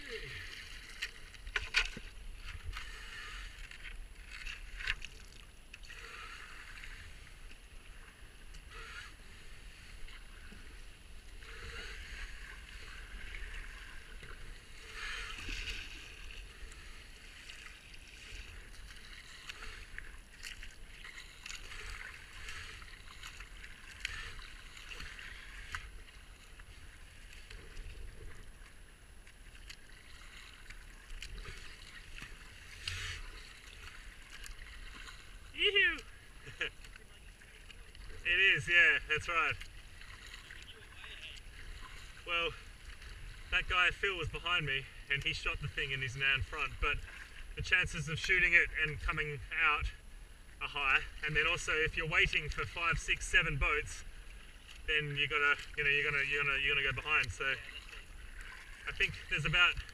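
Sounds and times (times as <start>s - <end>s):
paddle strokes splashing: 0.0s - 59.9s
water swishing along hull: 0.0s - 59.9s.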